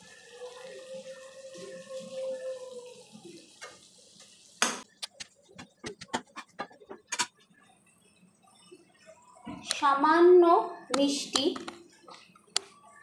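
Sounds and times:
soft hiss of cooking pan: 0.0s - 4.6s
sharp clicks and pops: 4.6s - 7.4s.

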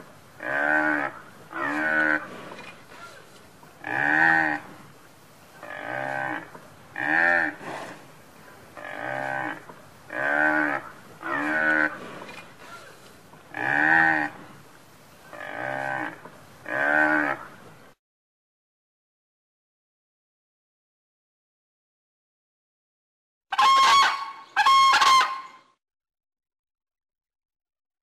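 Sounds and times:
water buffalo lowing: 8.7s - 14.7s.

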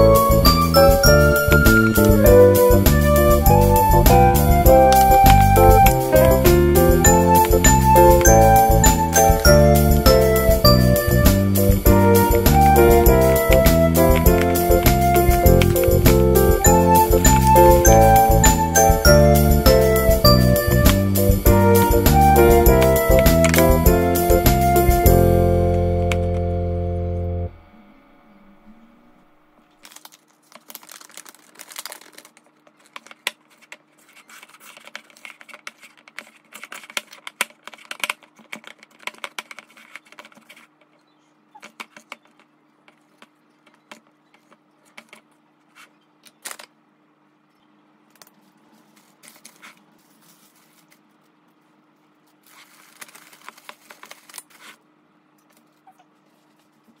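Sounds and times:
plastic wrap crinkling: 29.7s - 40.9s, 48.1s - 54.8s.

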